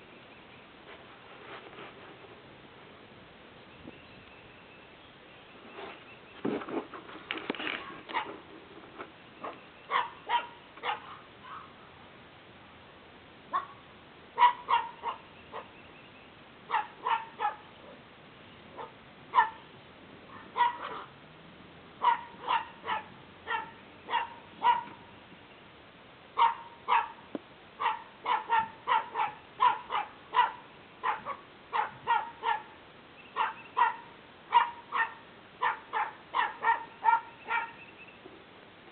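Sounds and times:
small dogs yapping: 0:07.7 - 0:08.4, 0:09.4 - 0:11.7, 0:14.4 - 0:15.7, 0:16.7 - 0:18.0, 0:18.7 - 0:19.6, 0:20.3 - 0:21.2, 0:22.0 - 0:25.0, 0:26.4 - 0:27.2, 0:27.8 - 0:32.8, 0:33.4 - 0:37.8.

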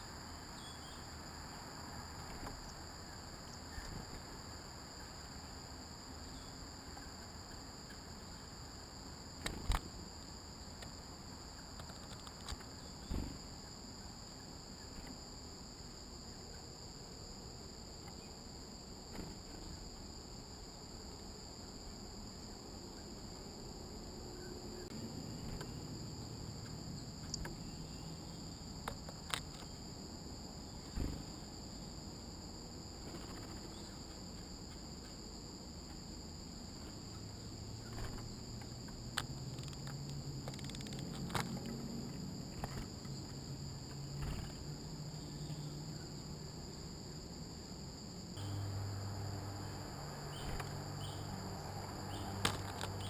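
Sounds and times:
insects singing: 0:24.3 - 0:53.0.

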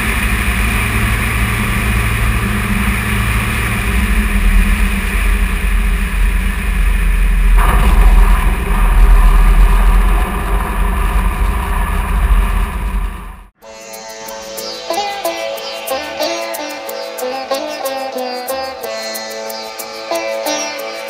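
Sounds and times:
aircraft engine and propeller: 0:00.0 - 0:08.0, 0:10.0 - 0:13.5
wind rumble on microphone: 0:00.0 - 0:13.5.

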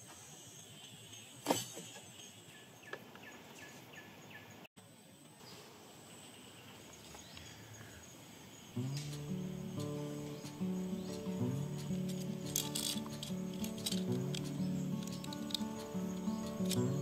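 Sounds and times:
faint insect drone: 0:00.0 - 0:03.4, 0:04.0 - 0:17.0
background music: 0:08.8 - 0:17.0
sharp click: 0:08.8 - 0:17.0.

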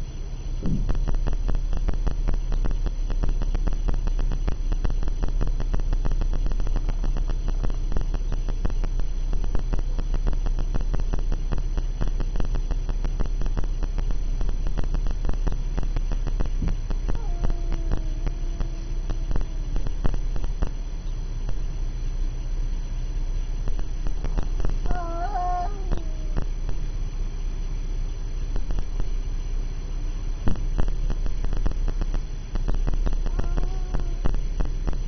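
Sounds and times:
steady mechanical hum: 0:00.0 - 0:35.0
cat yowling: 0:17.2 - 0:19.8, 0:24.8 - 0:26.5, 0:33.2 - 0:34.3.

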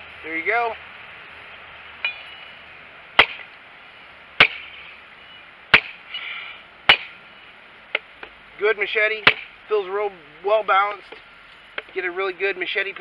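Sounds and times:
machete chopping wood: 0:03.2 - 0:03.6, 0:04.4 - 0:04.9, 0:05.7 - 0:06.1, 0:06.9 - 0:07.2, 0:09.2 - 0:09.6.

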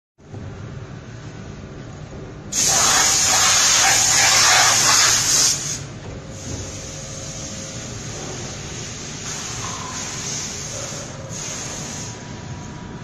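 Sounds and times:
loud compressed air hiss: 0:02.5 - 0:12.4.

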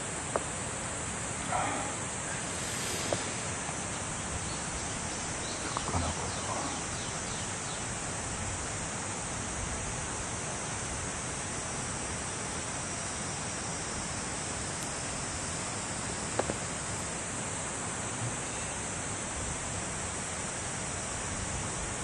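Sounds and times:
stream rushing: 0:00.6 - 0:05.5.

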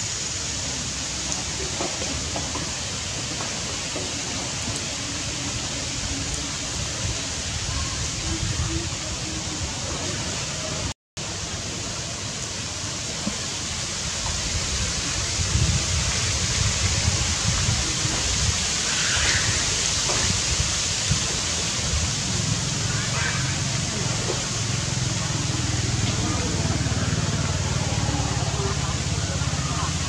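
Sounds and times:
wind buffeting microphone: 0:04.8 - 0:10.1, 0:14.2 - 0:22.7.

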